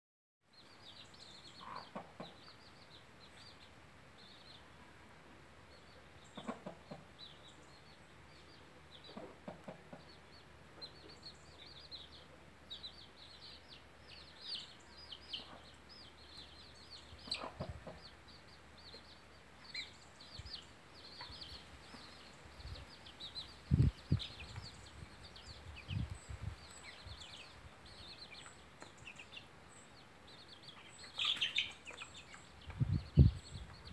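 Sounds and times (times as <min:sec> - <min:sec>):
chicks peeping: 0:00.6 - 0:04.7, 0:05.3 - 0:33.9
hen clucking: 0:01.6 - 0:02.4, 0:06.3 - 0:07.4, 0:09.0 - 0:10.2, 0:17.2 - 0:18.2.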